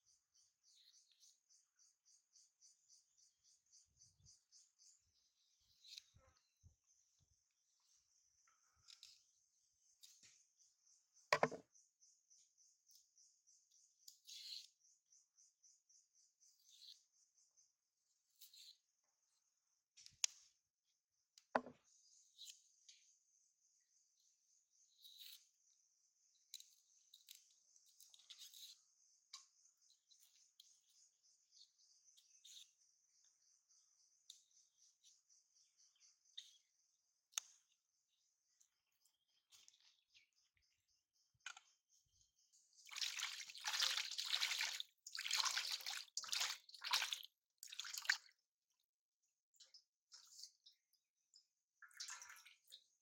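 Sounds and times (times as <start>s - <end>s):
hands splashing water in bowl: 42.9s - 48.3s.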